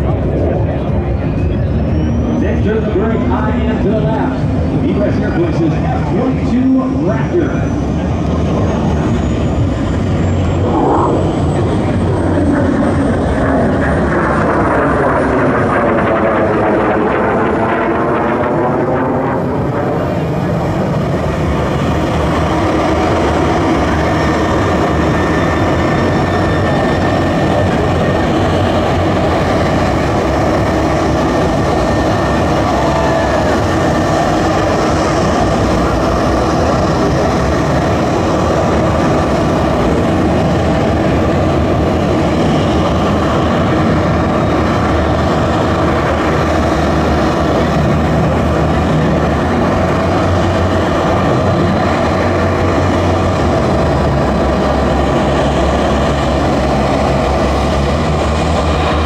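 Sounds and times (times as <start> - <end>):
jet engine roar: 0.0 - 59.0
faint whining tones: 7.4 - 21.4.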